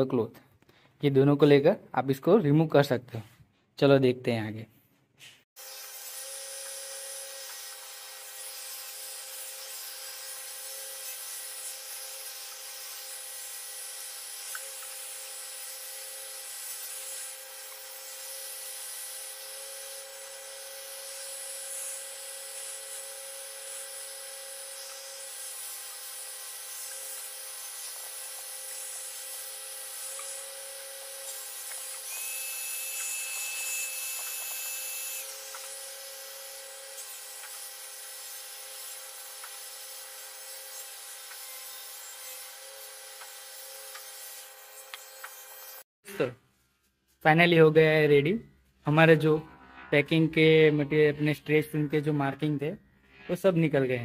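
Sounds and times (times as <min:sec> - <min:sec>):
hot air gun motor hum: 0:05.6 - 0:45.8.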